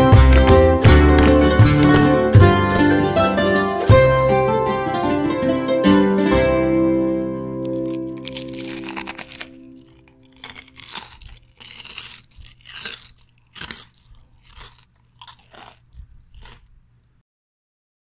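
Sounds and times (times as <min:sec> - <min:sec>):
crunching of fried food being chewed: 0:07.2 - 0:17.2.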